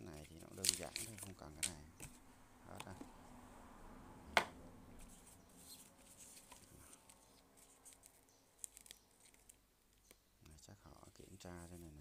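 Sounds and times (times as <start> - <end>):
bubble wrap rustling and crinkling: 0.1 - 1.8.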